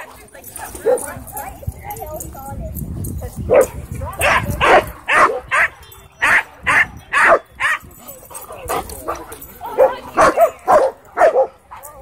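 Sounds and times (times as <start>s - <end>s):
dog barking: 3.5s - 7.8s, 9.7s - 11.8s.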